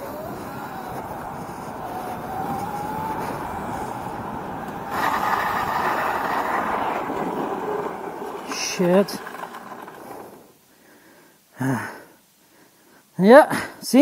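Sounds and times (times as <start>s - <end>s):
electric motor whine: 0.0s - 10.5s
rough kart noise in turn: 0.0s - 10.7s
tyre and road noise: 0.0s - 10.7s.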